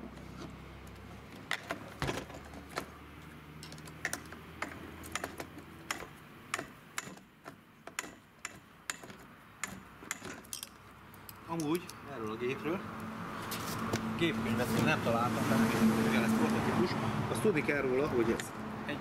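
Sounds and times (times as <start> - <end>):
sharp clicks and metallic taps: 3.6 - 12.4.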